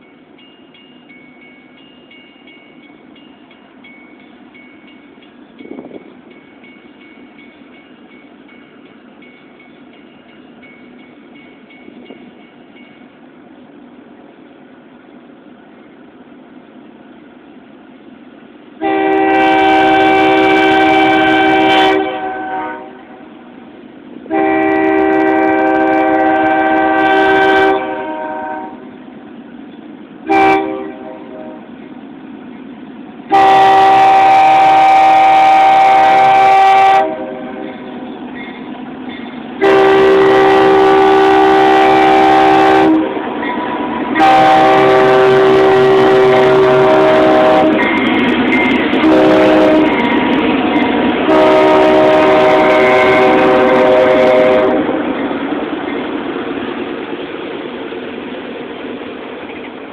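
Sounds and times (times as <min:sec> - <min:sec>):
locomotive air horn blasts: 0:18.8 - 0:23.2, 0:24.3 - 0:28.9, 0:30.3 - 0:31.7, 0:33.3 - 0:37.6, 0:39.6 - 0:43.2, 0:44.2 - 0:47.9, 0:48.9 - 0:50.1, 0:51.2 - 0:55.0.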